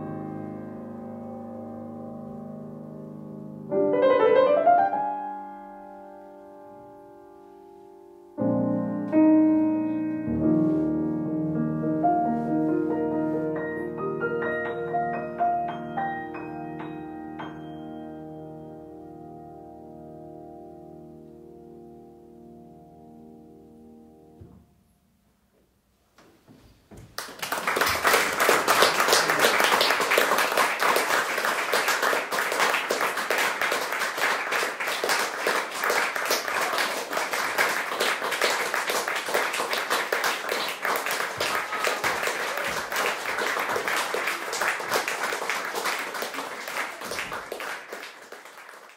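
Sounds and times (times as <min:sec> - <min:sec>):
audience applauding: 0:27.0 - 0:48.9.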